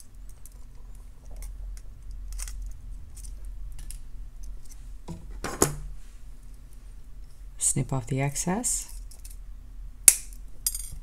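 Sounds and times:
pliers and wire clicking: 0:10.0 - 0:11.0.

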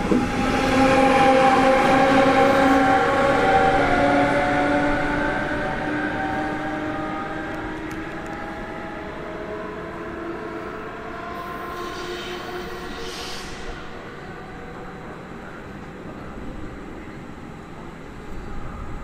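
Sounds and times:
train whine: 0:00.0 - 0:19.0
brief hiss: 0:11.7 - 0:14.0.

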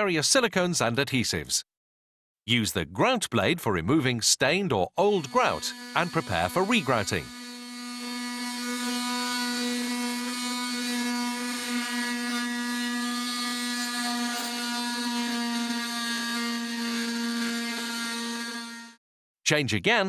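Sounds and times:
oscillating multi-tool raking grout: 0:04.9 - 0:19.0.

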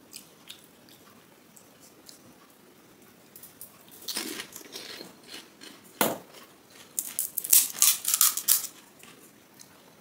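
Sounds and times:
crisp shells crunching: 0:06.7 - 0:08.8.

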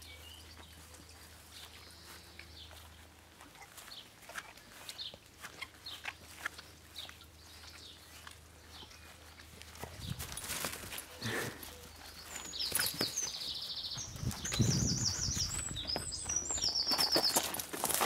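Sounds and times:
rustle: 0:00.0 - 0:13.8.

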